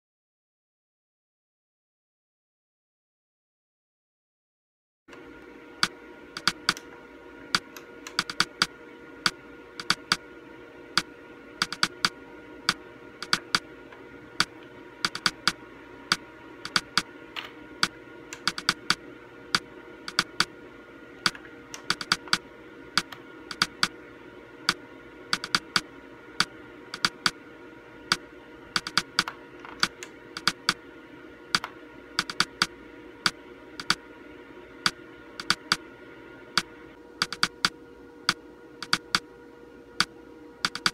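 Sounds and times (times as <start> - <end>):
low steady hum: 5.1 - 40.9.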